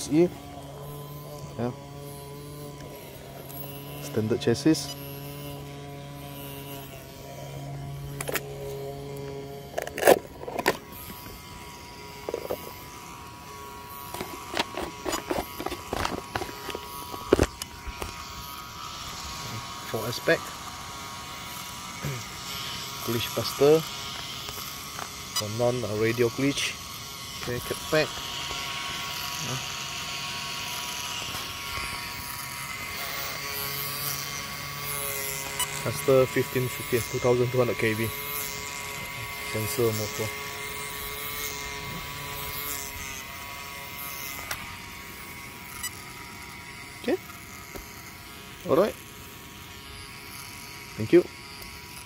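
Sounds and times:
small cooling fans buzzing: 0.0 - 52.0.

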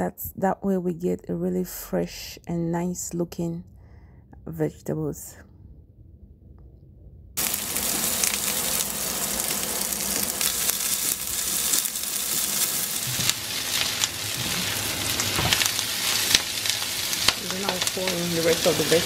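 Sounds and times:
onion and garlic sizzling in oil: 7.4 - 19.0.

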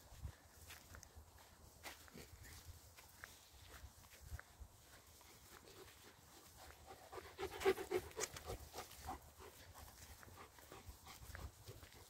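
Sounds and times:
dog panting: 5.3 - 12.0.

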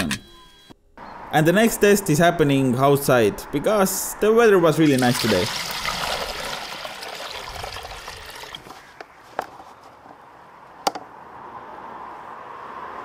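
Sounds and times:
water splashing and trickling: 4.7 - 8.9.

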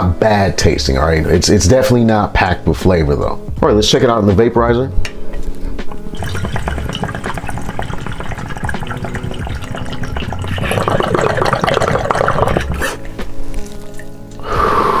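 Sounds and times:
water bubbling in a bong: 6.1 - 13.1
person inhaling: 14.4 - 15.0.

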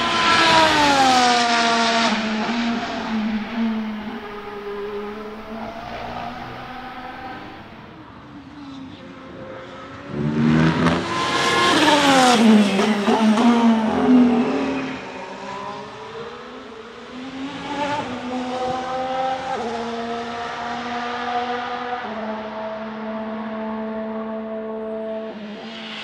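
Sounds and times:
race car passing at speed: 0.0 - 26.0
distant engine changing gears: 0.4 - 7.9.

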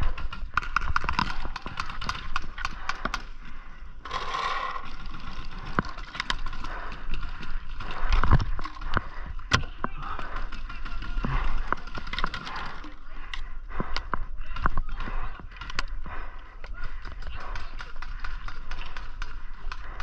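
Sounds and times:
paintball markers firing: 0.0 - 3.4, 13.8 - 20.0.

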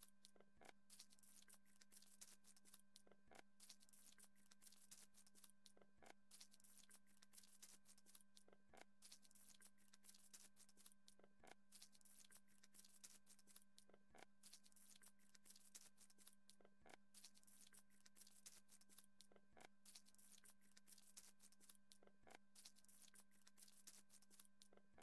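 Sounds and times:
faint steady hum and hiss: 0.0 - 25.0.

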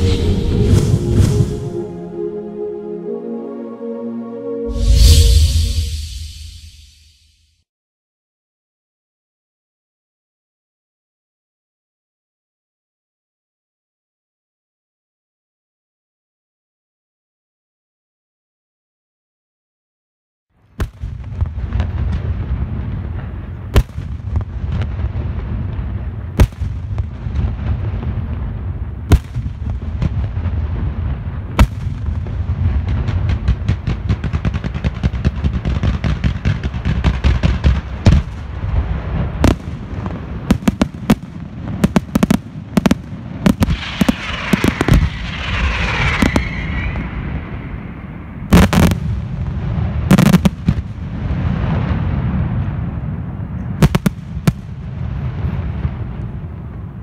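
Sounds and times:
fireworks crackling: 0.0 - 2.0, 20.8 - 53.0, 53.7 - 56.9
low rumble: 0.0 - 2.8, 4.6 - 7.2, 43.7 - 48.5
firework shells bursting: 41.8 - 47.5.

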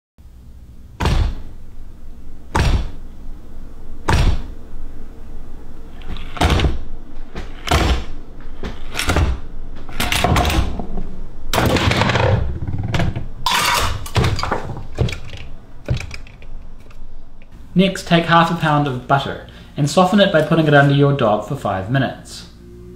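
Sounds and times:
wooden and metal knocks and thuds: 1.0 - 1.5, 2.5 - 3.0, 4.1 - 4.5, 6.1 - 11.0, 11.6 - 16.4
rapid clattering knocks: 11.6 - 17.0.

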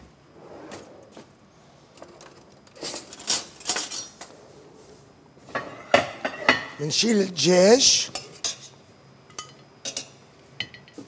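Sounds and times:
metal utensils clinking on pots: 2.8 - 4.3, 9.3 - 11.0.

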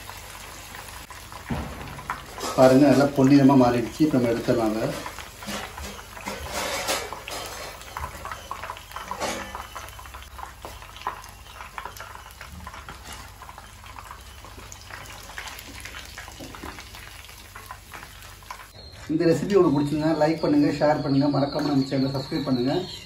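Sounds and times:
hot oil sizzling: 0.0 - 23.0.

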